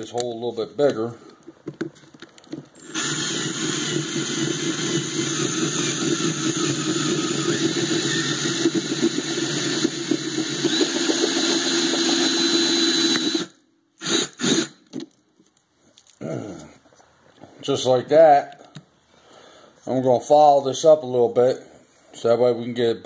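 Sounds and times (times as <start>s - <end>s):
power drill drilling into brass: 2.8s - 14.8s.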